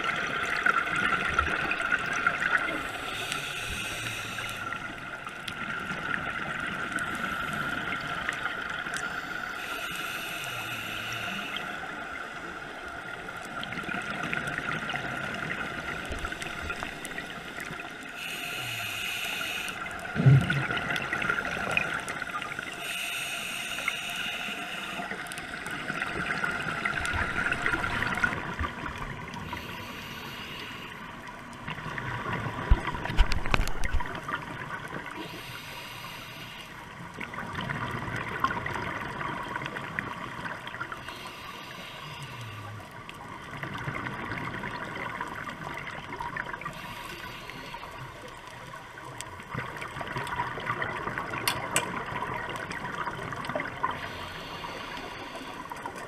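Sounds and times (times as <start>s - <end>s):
exhaled bubbles gurgling: 0.0s - 9.0s, 11.2s - 36.1s, 37.0s - 56.0s
regulator breathing inhalations: 2.7s - 4.9s, 9.0s - 12.5s, 16.1s - 20.0s, 22.5s - 25.7s, 29.4s - 31.2s, 35.2s - 36.9s, 41.0s - 42.8s, 46.6s - 48.2s, 54.0s - 56.0s.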